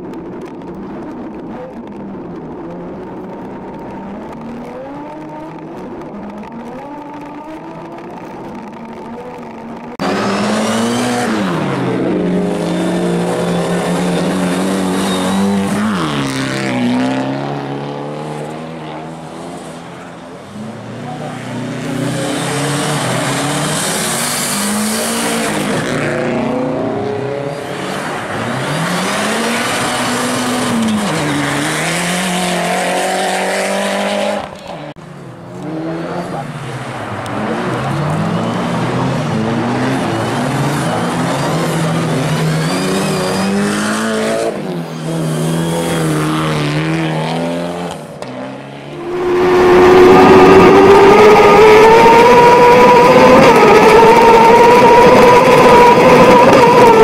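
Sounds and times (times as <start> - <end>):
rally car engines revving: 0.0 - 57.0
loud onboard engine revving: 9.9 - 19.6, 37.2 - 57.0.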